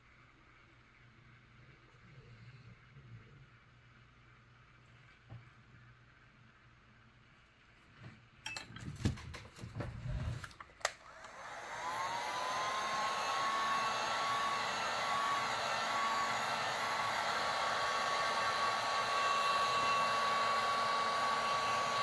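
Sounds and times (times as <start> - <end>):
heat gun blowing: 10.9 - 22.0.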